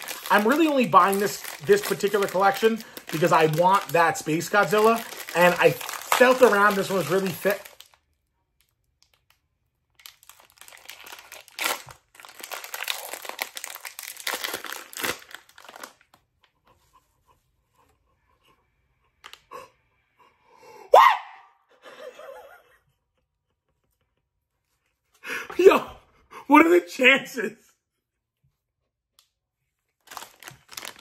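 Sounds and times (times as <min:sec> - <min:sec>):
wrapper tearing and crinkling: 0:00.0 - 0:08.1, 0:09.9 - 0:16.2, 0:30.0 - 0:31.0
excited squeal: 0:20.9 - 0:21.6
soft breathy laugh: 0:21.7 - 0:24.5.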